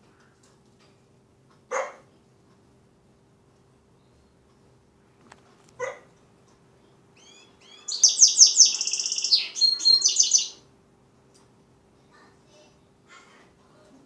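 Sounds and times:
bird chirping and twittering: 7.2 - 10.6.

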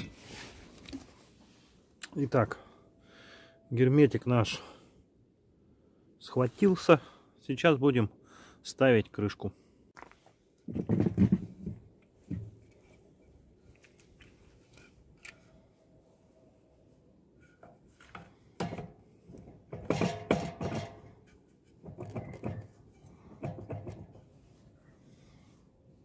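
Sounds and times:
metallic knocks and clatter: 17.5 - 24.3.

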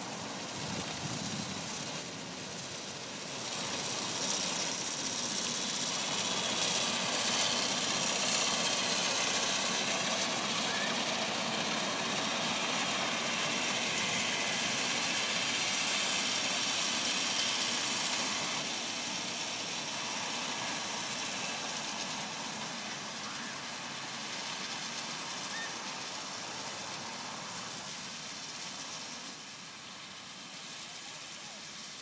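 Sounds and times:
tractor and mower drone: 0.0 - 32.0.

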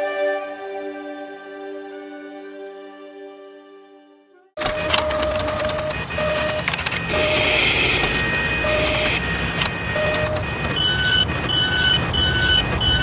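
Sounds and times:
low beep: 4.6 - 9.2, 9.9 - 13.0
higher beeps: 4.6 - 13.0
machinery whirring and clatter: 4.6 - 13.0.

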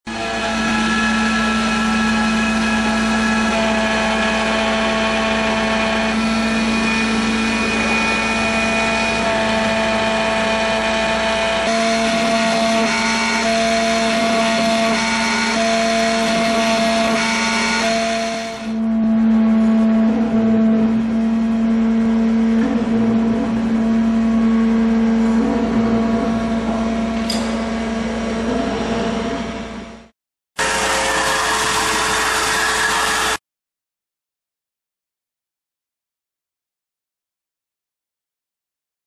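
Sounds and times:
engraver whining tones: 0.1 - 33.4
spindle motor humming: 0.1 - 33.4.

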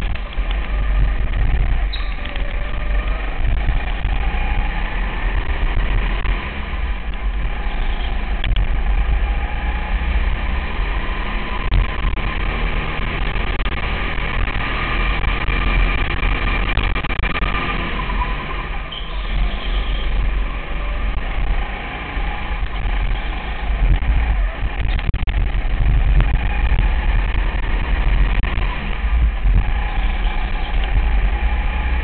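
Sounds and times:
kart engine at racing speed: 0.0 - 32.0.

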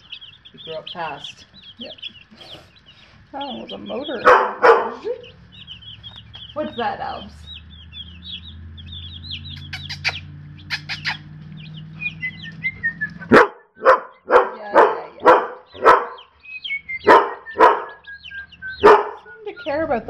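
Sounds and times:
chicks peeping: 0.0 - 20.0
dog barking: 4.1 - 5.3, 13.2 - 16.3, 17.0 - 18.1, 18.8 - 19.3.

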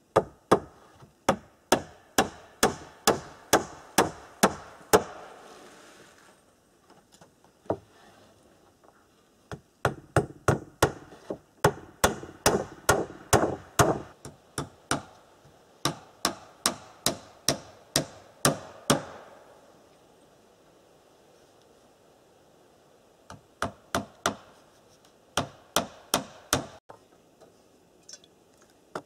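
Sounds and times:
hammer nailing wood: 1.3 - 5.2, 9.8 - 15.1, 15.8 - 19.2, 23.6 - 24.5, 25.4 - 26.8.

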